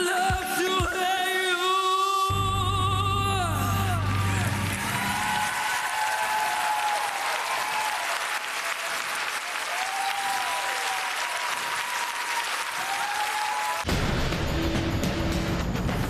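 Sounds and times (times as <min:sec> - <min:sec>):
audience applauding: 0:03.6 - 0:13.9.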